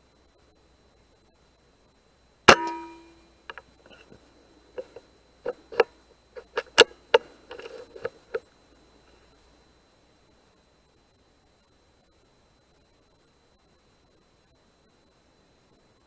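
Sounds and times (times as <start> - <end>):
short clicks and knocks: 2.5 - 4.0.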